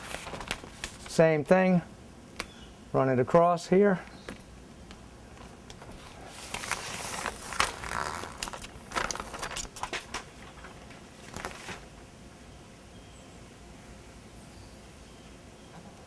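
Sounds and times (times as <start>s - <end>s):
adhesive tape crackling and rustling: 0.0s - 1.2s, 5.7s - 11.9s.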